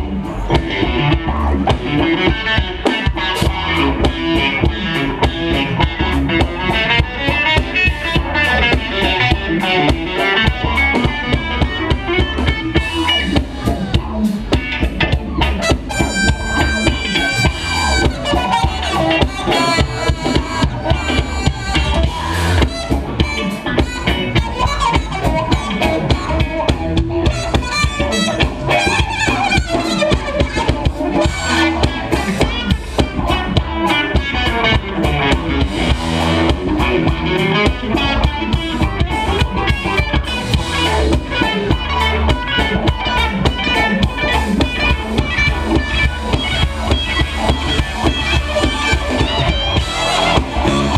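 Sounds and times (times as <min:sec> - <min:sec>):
drum kit beat: 0:00.0 - 0:50.9
live funk band playing: 0:00.0 - 0:50.9.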